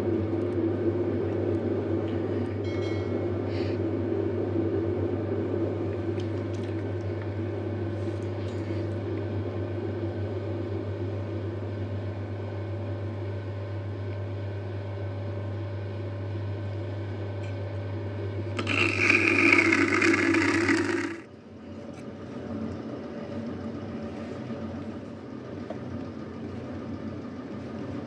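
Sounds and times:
potter's wheel humming: 0:18.2 - 0:28.0.

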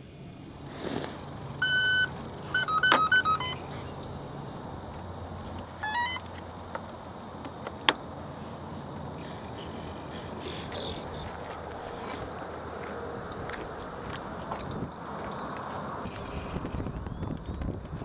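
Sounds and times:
speed controller beeping tones: 0:01.6 - 0:04.0, 0:05.8 - 0:06.3.

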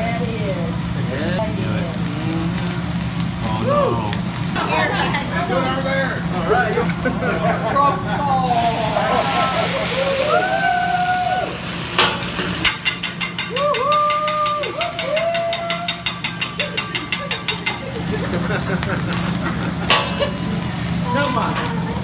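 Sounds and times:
flaming griddle noise: 0:00.0 - 0:22.0
metal spatula and fork clacking: 0:12.0 - 0:18.4, 0:19.9 - 0:20.5.

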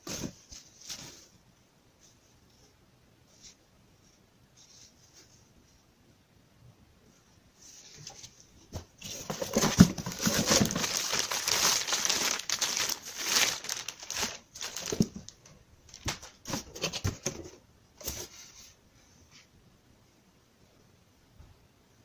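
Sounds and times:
packaging crinkling and rustling: 0:09.0 - 0:17.4.

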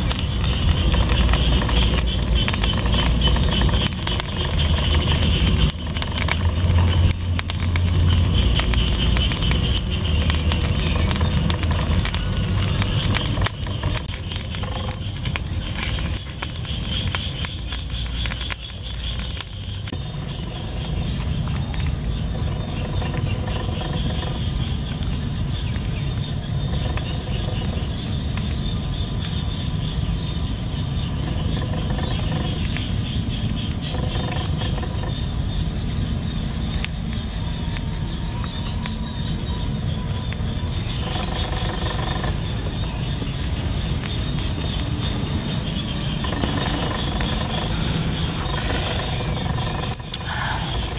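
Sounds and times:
sticks snapping: 0:00.0 - 0:19.9
low outdoor rumble: 0:00.0 - 0:50.9
wood fire crackling: 0:00.0 - 0:50.9.

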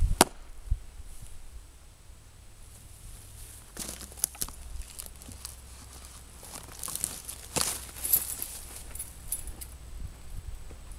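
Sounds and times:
sharp cracks: 0:00.2 - 0:00.5
footsteps in dry forest litter: 0:02.7 - 0:10.9.

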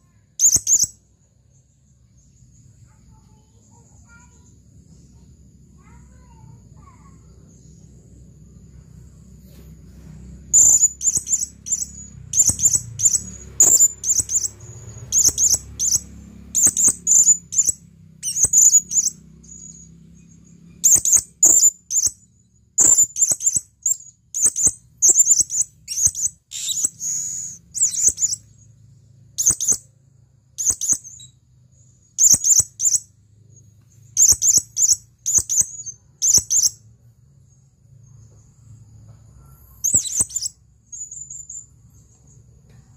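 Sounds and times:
parrot shrill calls: 0:10.5 - 0:19.9, 0:20.8 - 0:22.2, 0:22.8 - 0:28.4, 0:29.4 - 0:29.8, 0:32.2 - 0:33.1, 0:34.2 - 0:36.8, 0:39.8 - 0:40.6.

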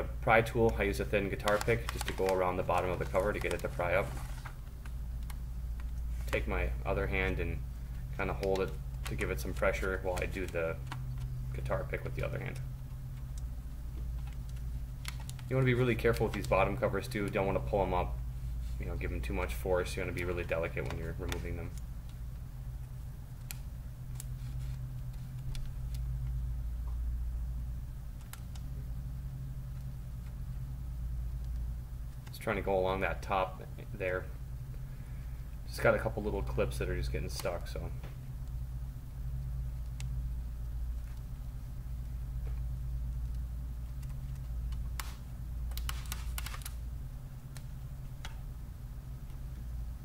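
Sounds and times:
low hum: 0:00.0 - 0:50.0.

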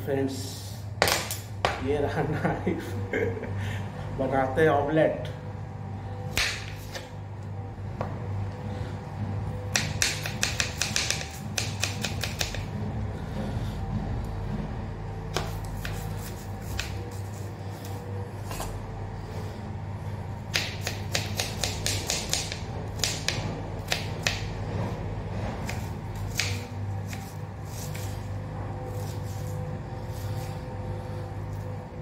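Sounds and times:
knife chopping on plastic board: 0:09.7 - 0:12.7, 0:15.3 - 0:17.1, 0:20.5 - 0:24.5, 0:25.6 - 0:28.1.

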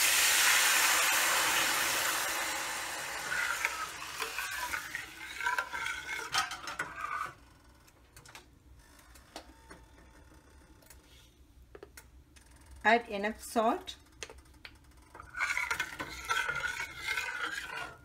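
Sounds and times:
spices sizzling in pan: 0:00.0 - 0:06.3
ladle scraping steel pan: 0:03.2 - 0:07.4, 0:15.2 - 0:18.0.

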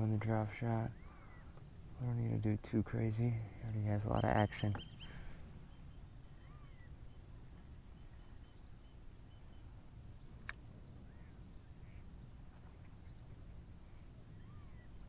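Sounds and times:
small bird chirps: 0:03.6 - 0:15.0
sharp click: 0:10.4 - 0:10.6.

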